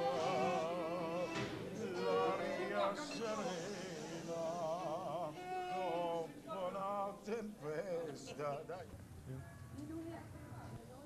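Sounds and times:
operatic singing: 0.0s - 7.6s.

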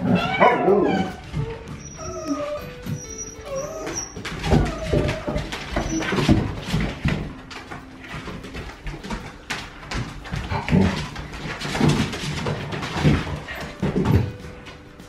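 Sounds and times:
puppies yipping and whining: 0.0s - 8.5s
claws clicking on hard floor: 0.7s - 14.8s.

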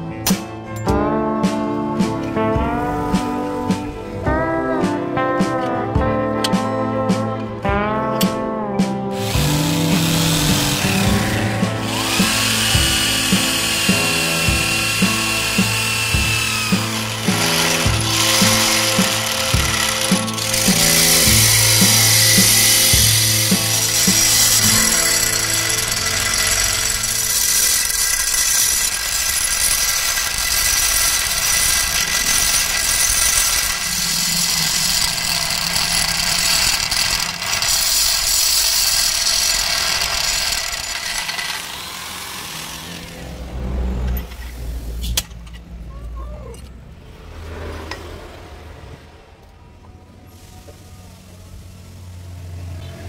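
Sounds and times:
background music: 0.0s - 39.6s
power tool on metal: 9.2s - 44.4s.

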